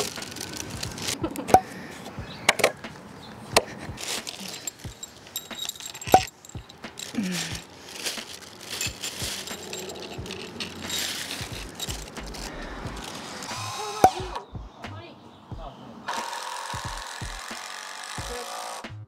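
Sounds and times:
metal bolt clicking and clinking: 0:04.0 - 0:13.2.

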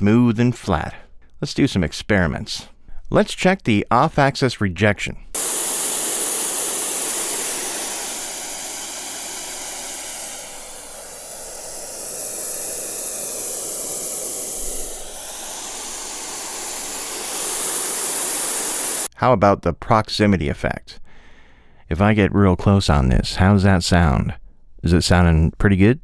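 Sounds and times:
test noise hiss from speaker: 0:05.4 - 0:19.1.

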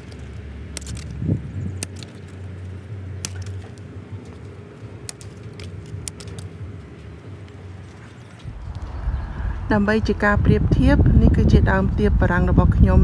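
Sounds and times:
scissors snipping: 0:00.0 - 0:08.5
leaves snapping off: 0:00.0 - 0:08.9
low steady hum: 0:00.0 - 0:13.0.

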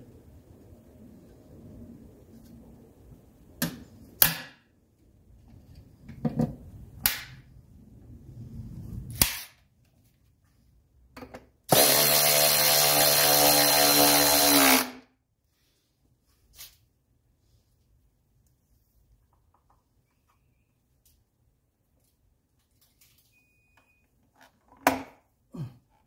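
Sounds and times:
cordless power tool whirring: 0:11.7 - 0:15.0.

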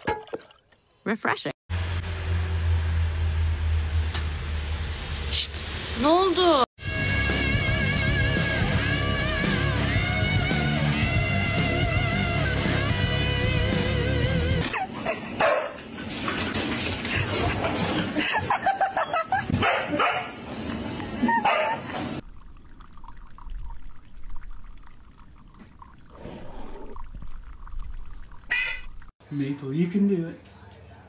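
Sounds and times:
dog barking and yipping: 0:14.6 - 0:15.9, 0:19.5 - 0:20.4, 0:21.4 - 0:21.8.

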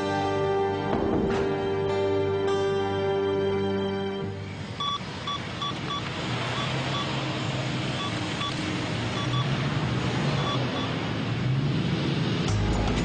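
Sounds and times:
street traffic: 0:03.0 - 0:13.0
phone keypad beeps: 0:04.8 - 0:07.1, 0:09.2 - 0:09.5.

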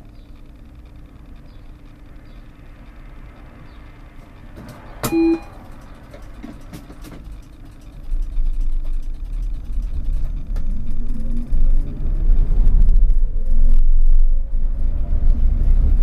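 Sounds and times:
tram rumble pulling away: 0:04.1 - 0:16.0
short beep with click: 0:05.0 - 0:05.6.

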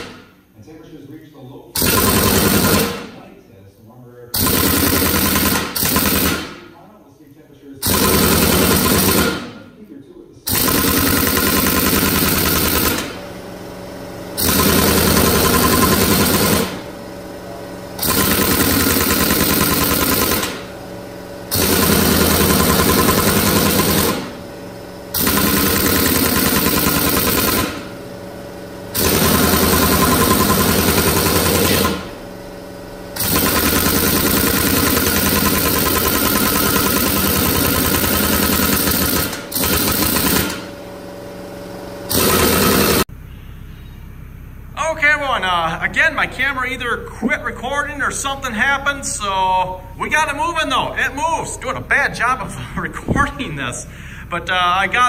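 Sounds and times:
air impact wrench hammering: 0:00.0 - 0:00.4, 0:01.8 - 0:03.2, 0:04.3 - 0:06.8, 0:07.8 - 0:09.6, 0:10.5 - 0:43.1.

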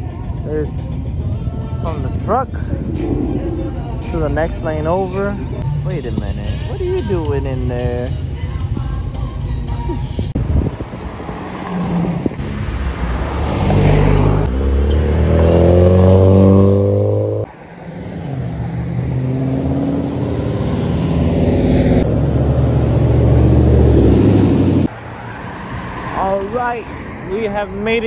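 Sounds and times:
car engines revving: 0:00.4 - 0:08.3, 0:10.3 - 0:27.8.

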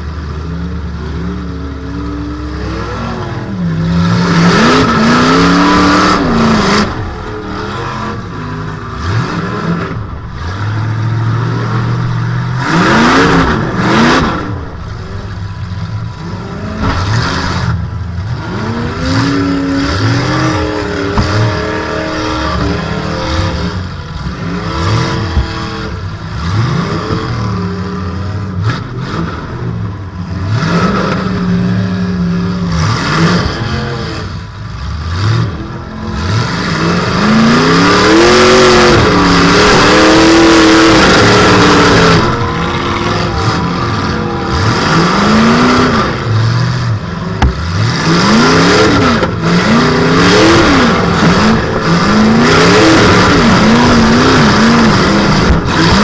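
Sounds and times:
car engine revving: 0:00.0 - 0:56.0
car body rattling: 0:20.2 - 0:26.3.

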